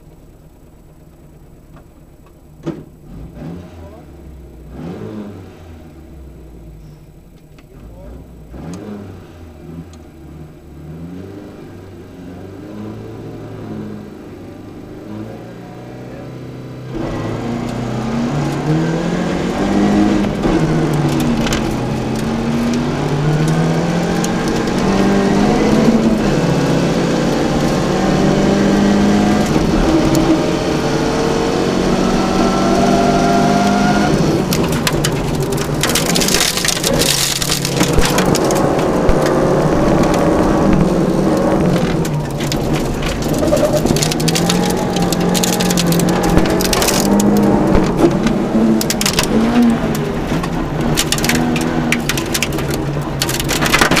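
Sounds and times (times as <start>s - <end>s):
car engine revving hard: 3.0s - 6.3s, 7.9s - 54.0s
tyres on gravel: 33.5s - 54.0s.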